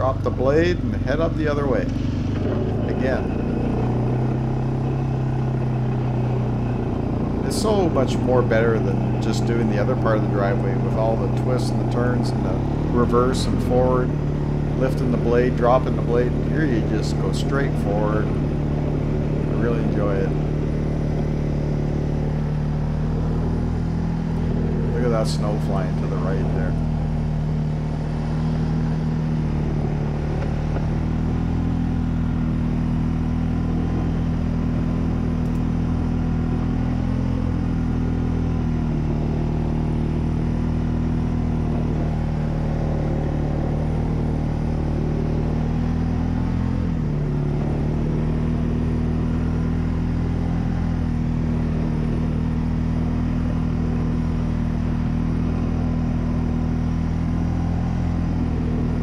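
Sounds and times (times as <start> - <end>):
atv engine running under load: 0.0 - 59.0.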